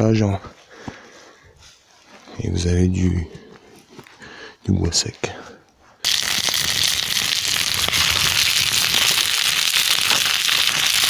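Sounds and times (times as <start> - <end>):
campfire crackling: 6.0 - 11.0.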